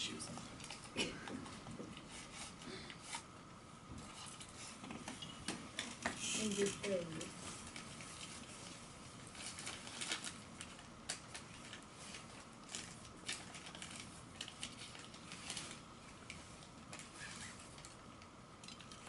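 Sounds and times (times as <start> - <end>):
paper crinkling and rustling: 5.8 - 18.0.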